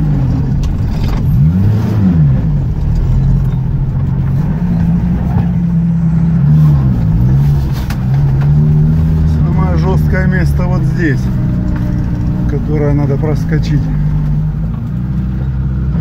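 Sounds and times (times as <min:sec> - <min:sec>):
off-road vehicle engine under load: 0:00.0 - 0:16.0.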